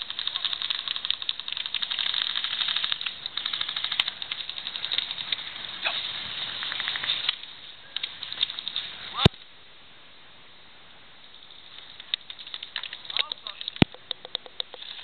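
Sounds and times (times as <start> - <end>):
airsoft guns firing full-auto: 0.0 - 7.4.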